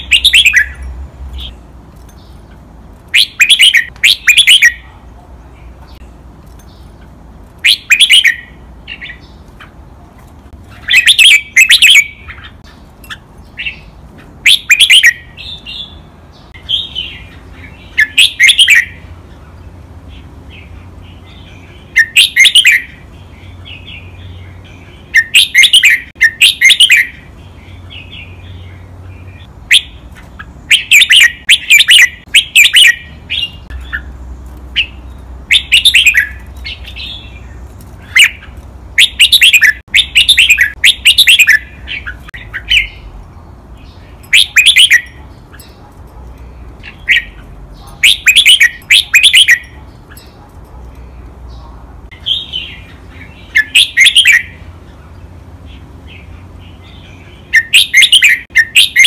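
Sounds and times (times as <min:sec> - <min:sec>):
bird singing song phrases: 0:00.0 - 0:59.0
soft bird chattering: 0:43.8 - 0:59.0.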